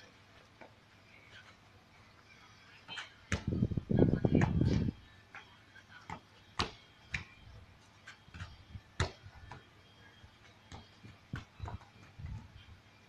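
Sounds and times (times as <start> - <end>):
foot kicking football: 3.3 - 4.9, 8.3 - 9.6, 10.7 - 12.4.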